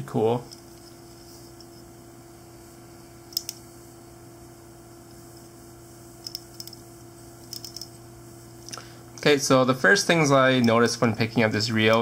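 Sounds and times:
steady electrical hum: 0.0 - 12.0
metal fly reel clicks: 6.2 - 6.8, 7.4 - 7.9.

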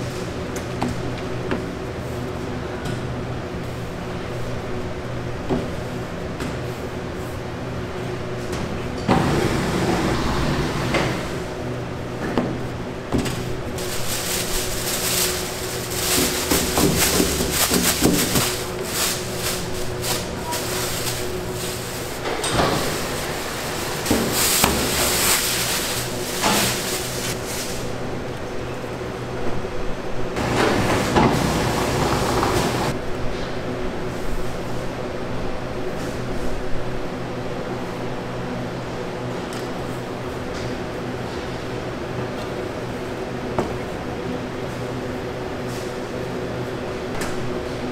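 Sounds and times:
steady machine hum: 1.3 - 34.0
clatter of trays and equipment: 12.2 - 27.8, 30.4 - 33.5.

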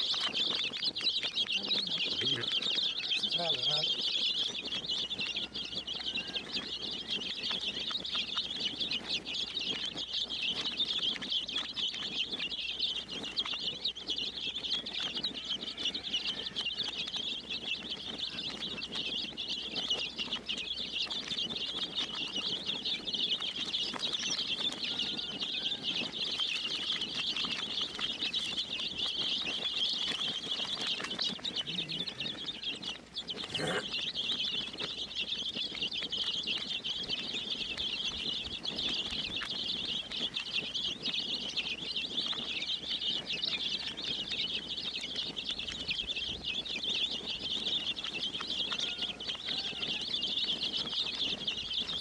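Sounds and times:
baby chicks peeping: 0.0 - 52.0.

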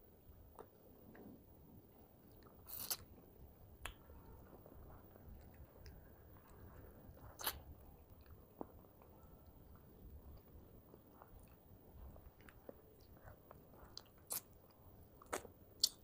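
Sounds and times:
wet chewing: 3.8 - 9.4, 10.3 - 16.0.

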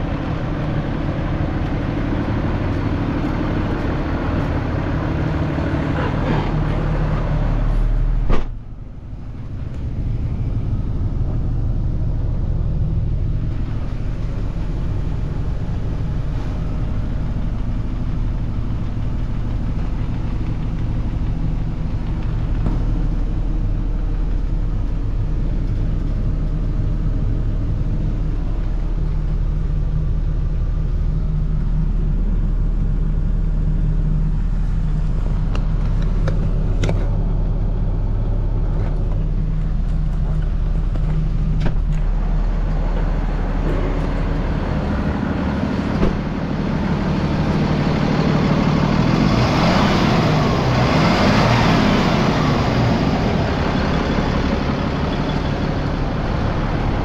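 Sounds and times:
diesel engine idling: 0.0 - 57.0
thump: 8.2 - 8.6, 46.0 - 46.2.

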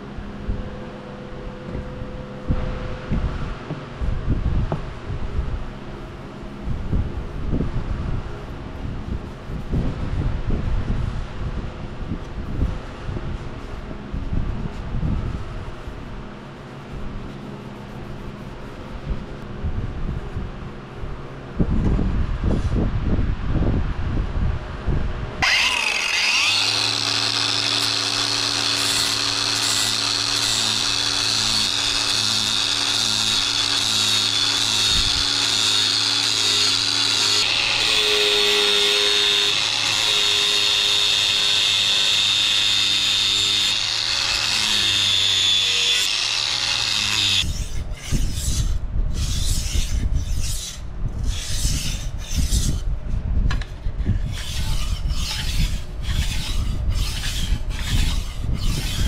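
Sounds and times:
angle grinder grinding steel: 25.4 - 52.8, 54.2 - 59.0
blade stroked on whetstone: 46.0 - 52.9, 54.1 - 59.0.

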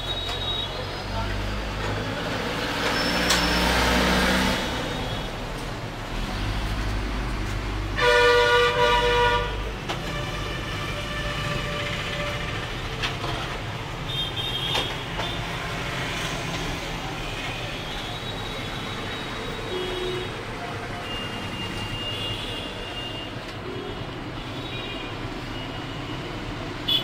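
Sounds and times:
vehicle horn: 8.0 - 12.5.

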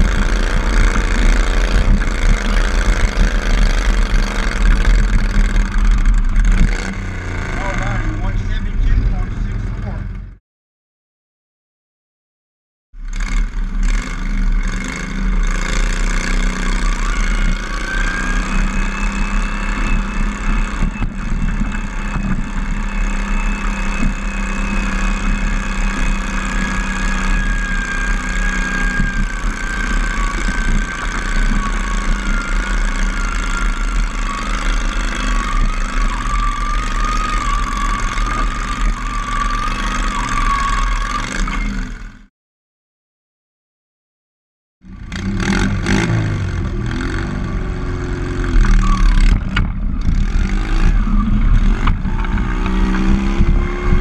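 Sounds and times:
high whine: 0.0 - 10.3, 13.5 - 42.3
tractor engine running hard: 0.0 - 10.4, 13.0 - 42.3, 44.8 - 54.0.

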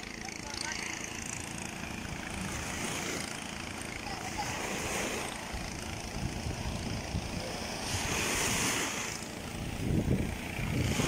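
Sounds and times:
surf washing on shore: 0.0 - 11.0
wind buffeting microphone: 5.6 - 11.0.

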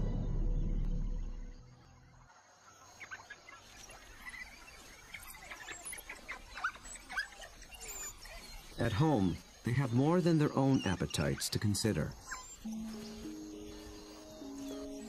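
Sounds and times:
soundtrack music: 0.0 - 1.7
high rising chirps: 12.2 - 15.0.

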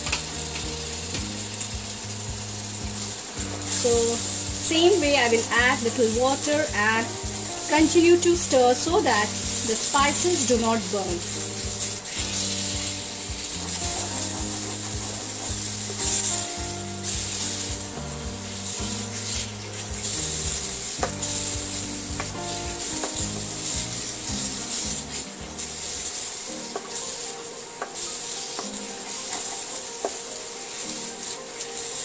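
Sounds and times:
background music: 0.0 - 32.0
paste sizzling in a pan: 0.0 - 32.0
spatula scraping a pan: 3.0 - 17.7, 18.4 - 27.2.

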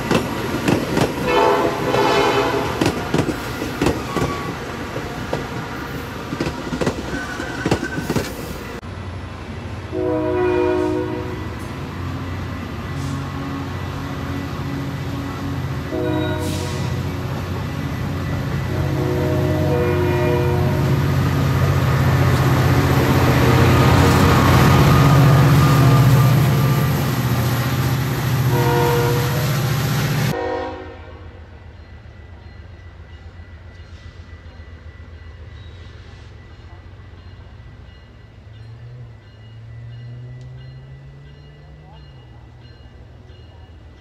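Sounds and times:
train passing with rumble: 0.0 - 44.0
diesel locomotive horn: 1.2 - 3.3, 9.8 - 27.1, 28.2 - 31.6.

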